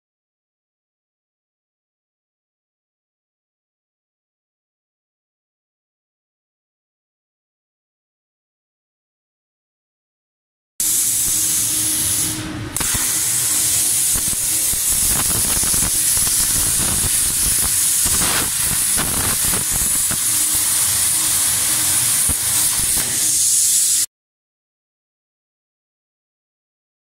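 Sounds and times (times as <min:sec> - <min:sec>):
plasma torch hissing: 0:10.8 - 0:24.1.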